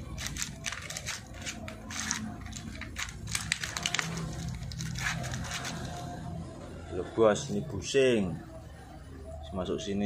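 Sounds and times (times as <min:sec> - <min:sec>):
metal parts rattling in plastic tray: 0:00.0 - 0:06.0
thin plastic crackling: 0:00.0 - 0:06.2.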